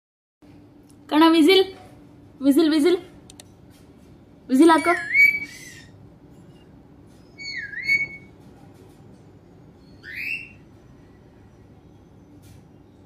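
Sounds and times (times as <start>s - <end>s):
parakeet whistling: 4.8s - 6.0s, 7.4s - 8.3s, 10.0s - 10.6s.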